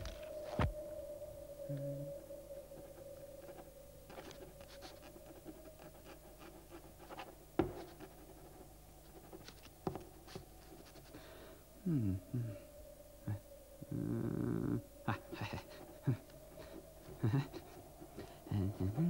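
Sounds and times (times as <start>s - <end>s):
faint steady hum: 0.0s - 19.0s
pen scratching on paper: 3.4s - 11.2s.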